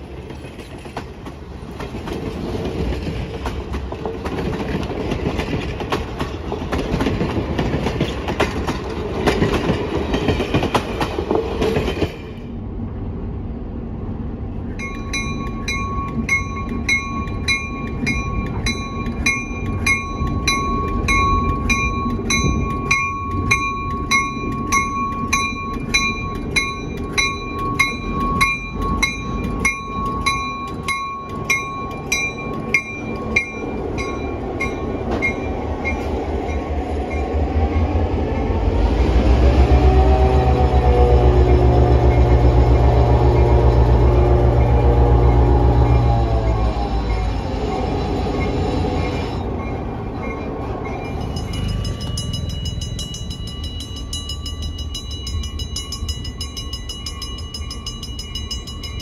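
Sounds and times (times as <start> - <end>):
train wheels clacking over rail joints: 0.0 - 12.4, 14.8 - 37.8
diesel locomotive humming: 0.0 - 59.0
locomotive bell ringing: 14.8 - 38.6, 40.0 - 59.0.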